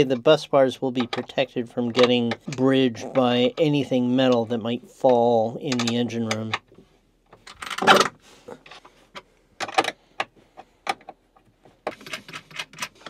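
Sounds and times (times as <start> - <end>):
metal hardware clicking and rattling: 1.0 - 11.1.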